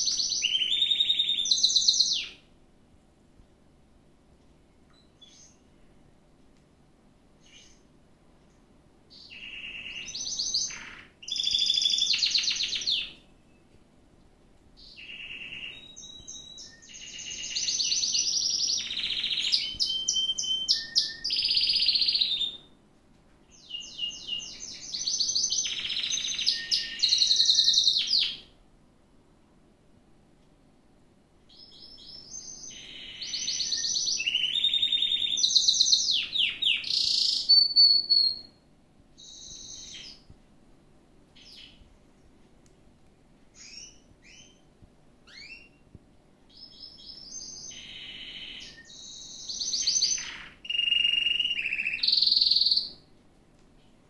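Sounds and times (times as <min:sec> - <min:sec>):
canary singing trills: 0:00.0 - 0:02.5, 0:04.8 - 0:05.8, 0:07.4 - 0:07.8, 0:09.1 - 0:13.8, 0:14.8 - 0:22.8, 0:23.5 - 0:28.5, 0:31.5 - 0:38.6, 0:39.2 - 0:40.3, 0:43.5 - 0:45.9, 0:46.5 - 0:53.1.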